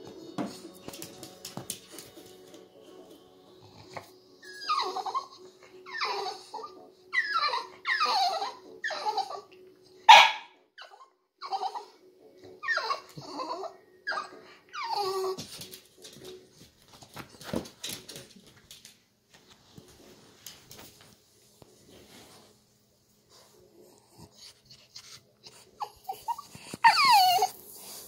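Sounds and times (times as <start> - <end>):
dog whining: 4.4 - 9.5, 10.8 - 12.0, 12.6 - 15.4, 25.4 - 28.0.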